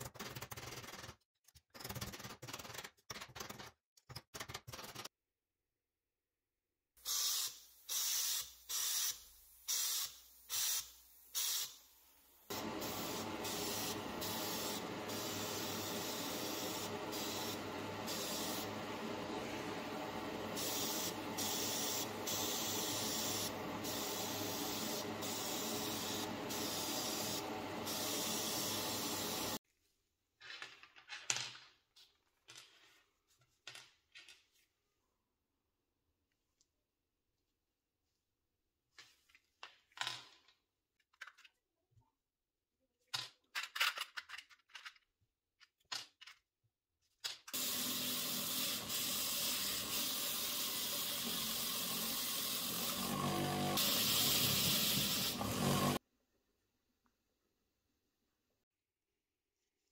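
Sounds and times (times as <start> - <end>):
spray gun hissing: 7.0 - 11.8, 12.4 - 29.6, 47.6 - 56.0
short bursts of hissing air: 7.0 - 18.8, 20.5 - 29.6, 47.5 - 56.0.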